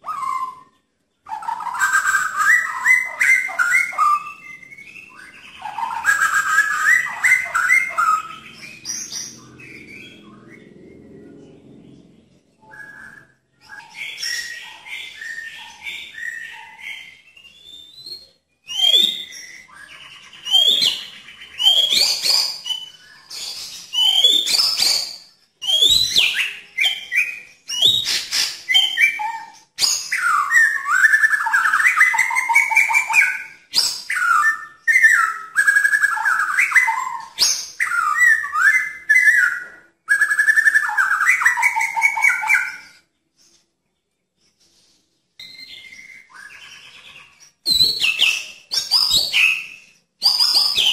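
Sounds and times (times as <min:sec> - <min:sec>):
songbird singing loudly: 0:00.0 - 0:11.8, 0:12.6 - 0:43.0, 0:45.4 - 0:50.9.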